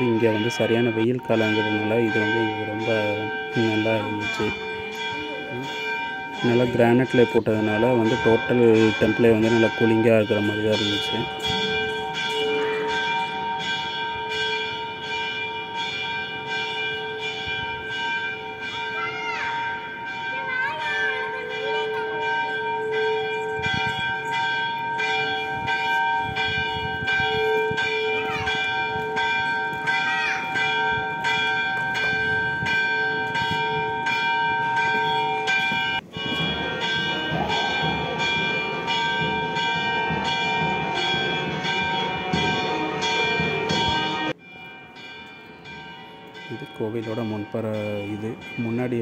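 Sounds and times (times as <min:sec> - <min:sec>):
temple bells ringing: 0:00.0 - 0:49.0
low beat: 0:30.6 - 0:44.3.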